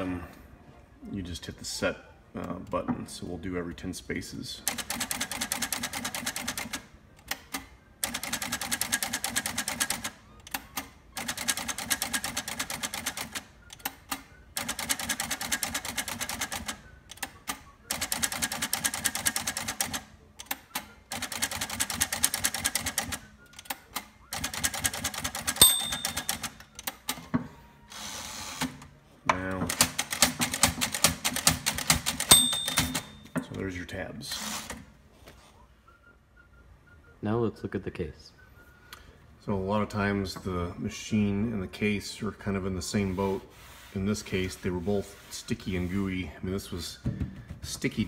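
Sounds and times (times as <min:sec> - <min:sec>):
typewriter margin bell ringing: 0:24.8 - 0:26.6, 0:32.2 - 0:33.3.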